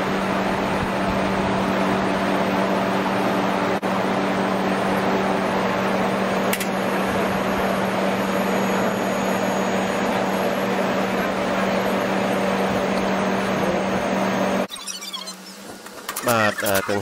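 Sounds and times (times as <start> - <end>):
condenser fan blowing: 0.0 - 14.7
steady hum: 0.0 - 14.7.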